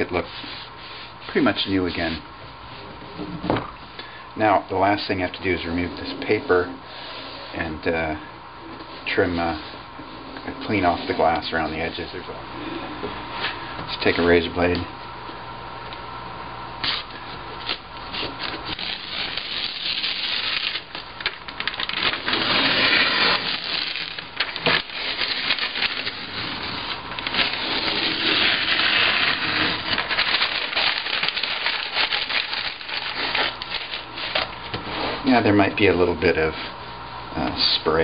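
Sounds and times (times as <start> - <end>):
paper crinkling and ripping: 16.8 - 34.7.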